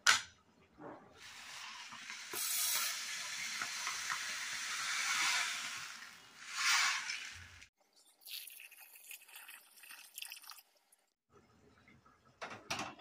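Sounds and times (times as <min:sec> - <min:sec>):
sugar pouring into metal pot: 0:08.2 - 0:10.6.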